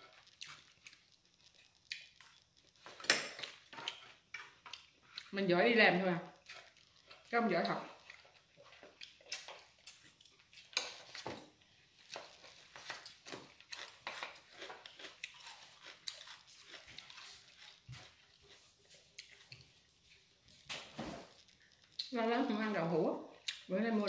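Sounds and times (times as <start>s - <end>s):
person chewing food: 0.0s - 5.4s, 6.2s - 20.6s, 21.2s - 22.1s, 23.3s - 23.7s.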